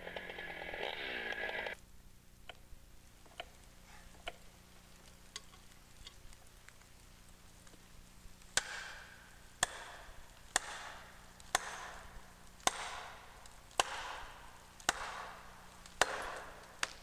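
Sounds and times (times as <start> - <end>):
axe hammering a wedge: 8.6 - 9.0, 9.6 - 13.2, 13.8 - 15.4, 16.0 - 17.0.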